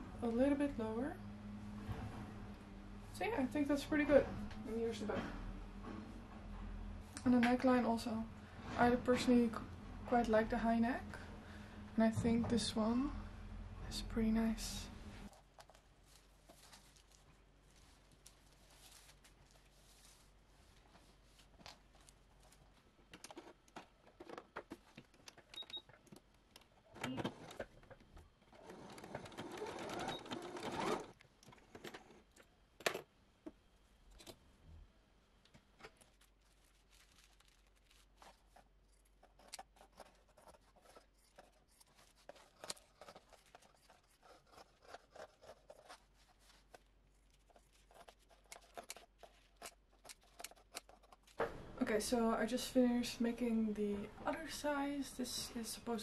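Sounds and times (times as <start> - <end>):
paper and fabric rustling: 15.2 - 25.0, 35.8 - 51.4
scissors cutting fabric: 38.3 - 46.8.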